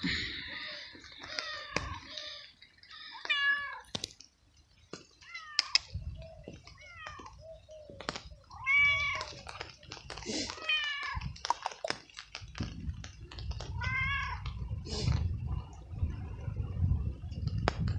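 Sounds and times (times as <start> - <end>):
cat meowing loudly: 6.8 - 7.4, 8.5 - 9.4, 10.6 - 11.2, 13.8 - 14.4.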